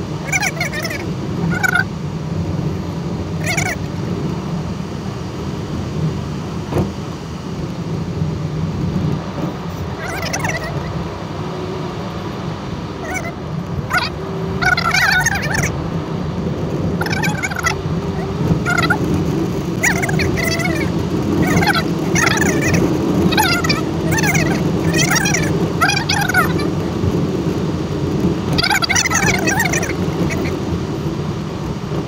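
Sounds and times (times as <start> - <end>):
car driving drone: 0.0 - 32.0
high-pitched warbling: 0.3 - 1.9, 3.4 - 3.8, 10.0 - 10.9, 13.0 - 15.8, 17.0 - 19.0, 19.8 - 26.7, 28.6 - 30.5.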